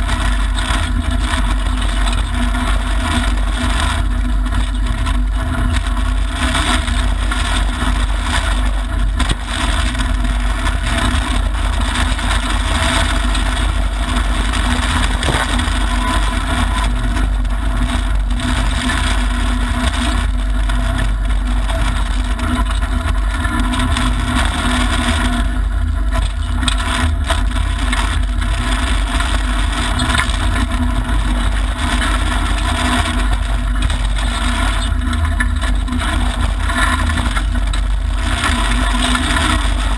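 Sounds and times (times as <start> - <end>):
car engine running hard: 0.0 - 39.9
tyres on gravel: 12.8 - 17.3.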